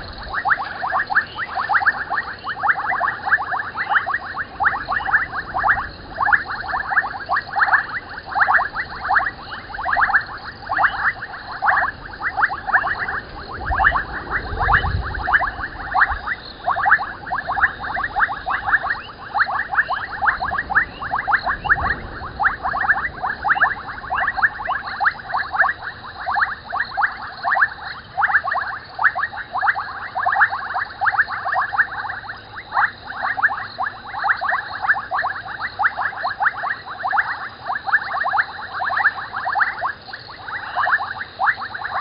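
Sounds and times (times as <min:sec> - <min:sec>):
frogs chorus clicking calls: 0:00.0 - 0:42.0.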